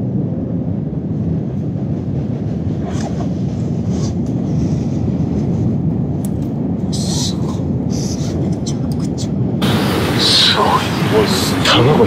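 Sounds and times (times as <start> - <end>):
wind rumble on microphone: 0.0 - 12.0
sea surf: 9.6 - 12.0.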